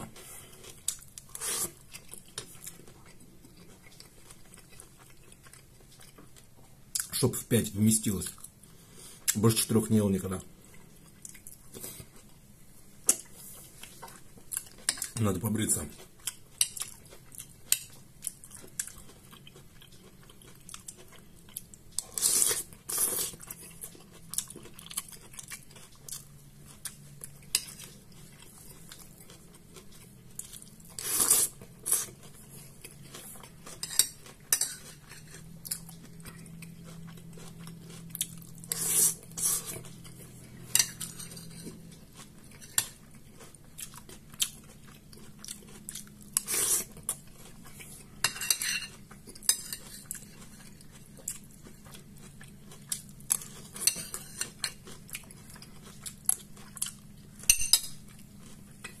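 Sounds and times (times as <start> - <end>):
chewing toast: 16.0 - 59.0.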